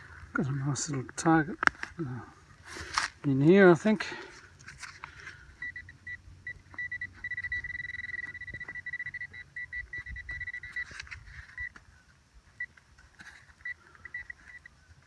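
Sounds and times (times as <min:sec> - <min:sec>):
soil scraping and clicking: 0:00.8 - 0:02.0, 0:02.6 - 0:03.4, 0:10.6 - 0:15.0
metal detector beeping: 0:05.6 - 0:11.8, 0:12.6 - 0:14.8.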